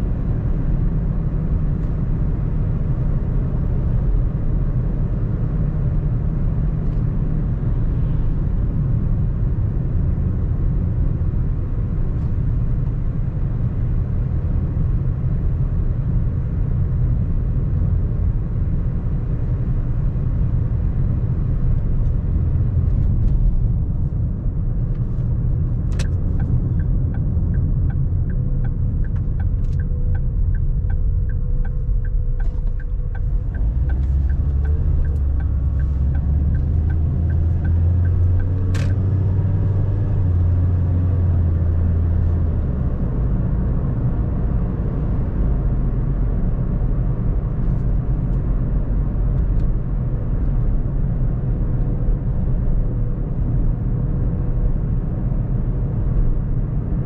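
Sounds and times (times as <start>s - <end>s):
car road and engine rumble: 0.0s - 57.0s
low engine hum: 0.0s - 57.0s
turn indicator ticking: 25.5s - 40.8s.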